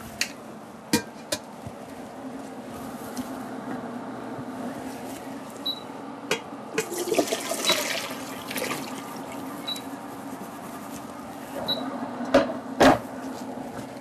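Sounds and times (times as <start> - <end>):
water pouring into colander: 6.8 - 9.5.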